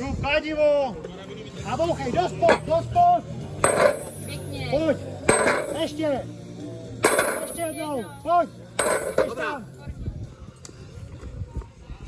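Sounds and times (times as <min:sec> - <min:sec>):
sledgehammer clanging on steel: 0:03.6 - 0:04.3, 0:05.3 - 0:06.0, 0:07.0 - 0:07.8, 0:08.8 - 0:09.5.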